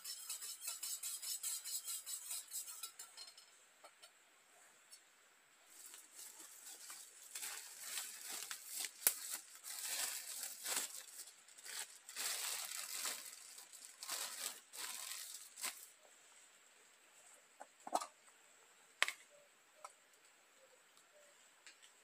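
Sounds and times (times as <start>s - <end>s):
plastic bag crinkling: 5.7s - 16.0s.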